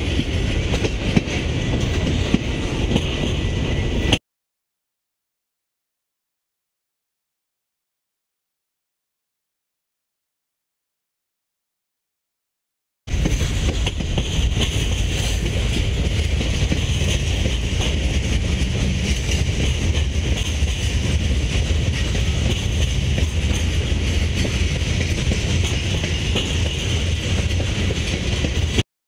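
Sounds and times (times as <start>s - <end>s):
freight train wheels rumbling: 0.0s - 4.2s, 13.1s - 28.8s.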